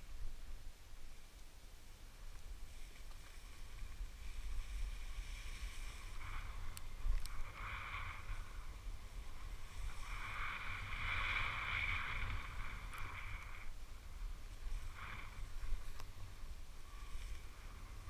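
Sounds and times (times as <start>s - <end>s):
low wind rumble on microphone: 0.0s - 18.0s
skis scraping on snow: 2.6s - 18.0s
small clicks: 6.7s - 7.4s.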